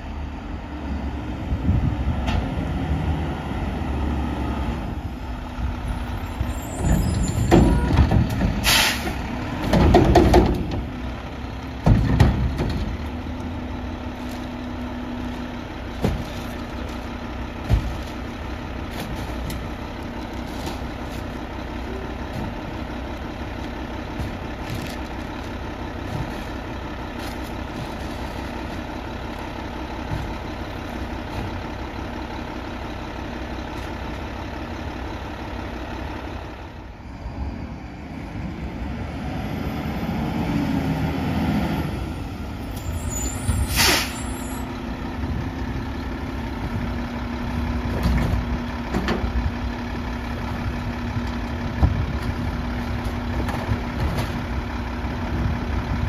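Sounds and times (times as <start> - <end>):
diesel engine idling: 0.0 - 56.0
air brake hiss: 8.6 - 9.2, 43.3 - 44.6.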